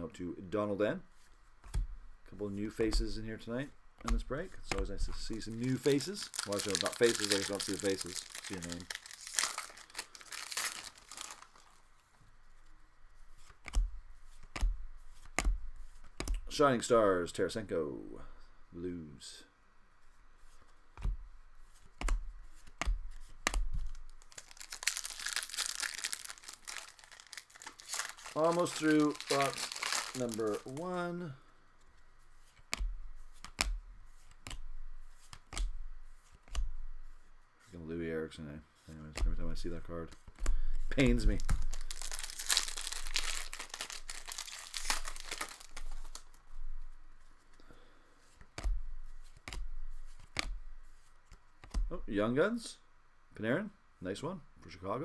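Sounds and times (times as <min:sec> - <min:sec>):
cards rustling: 0:04.0 - 0:16.6, 0:20.4 - 0:37.4, 0:38.8 - 0:51.9
foil wrapper crinkling and tearing: 0:05.4 - 0:11.8, 0:23.8 - 0:31.0, 0:41.0 - 0:46.4.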